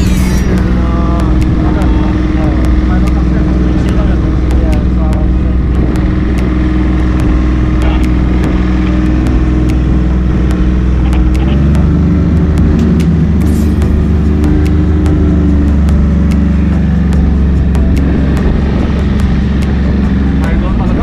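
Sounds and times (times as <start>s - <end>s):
boat engine running: 0.0s - 21.0s.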